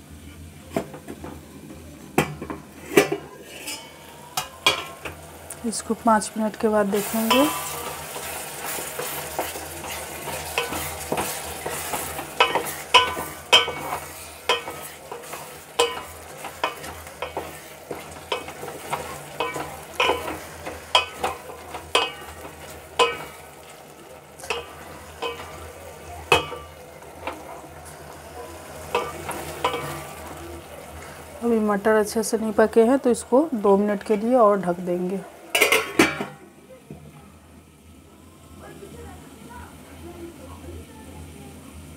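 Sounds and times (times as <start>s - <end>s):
soft sizzle: 0.0s - 41.9s
spatula scraping metal pot: 2.8s - 5.2s, 7.0s - 23.6s, 24.4s - 25.7s, 26.3s - 30.3s.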